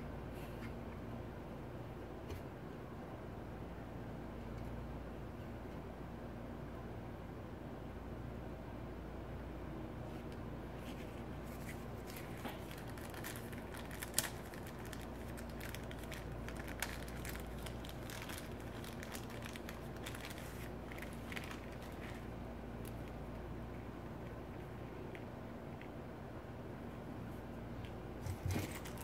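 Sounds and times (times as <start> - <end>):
steady low hum: 0.0 - 29.0
plastic bag crinkling: 11.4 - 23.1, 28.2 - 29.0.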